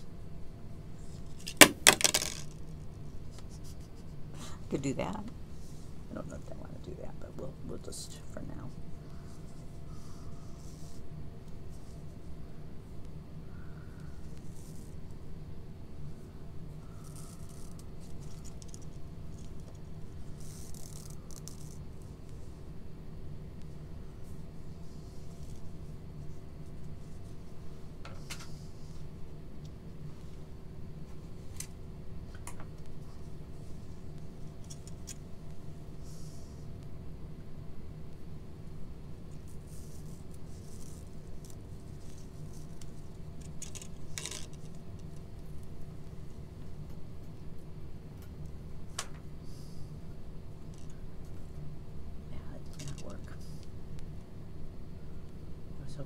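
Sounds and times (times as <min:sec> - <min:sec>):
low room hum: 0:00.0 - 0:56.0
paper rustling and ticking: 0:39.7 - 0:45.2.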